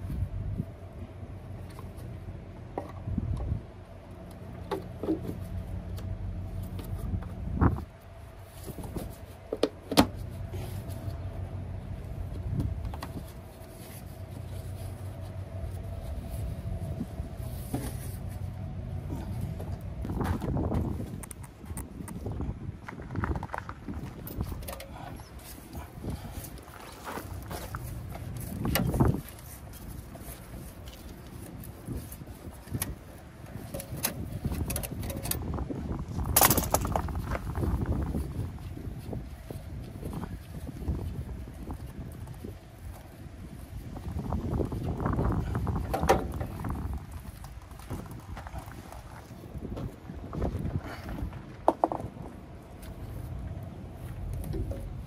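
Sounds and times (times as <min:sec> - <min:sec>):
engine running steadily: 0:00.0 - 0:55.0
steady low rumble: 0:00.0 - 0:55.0
metal rattle: 0:36.2 - 0:37.6.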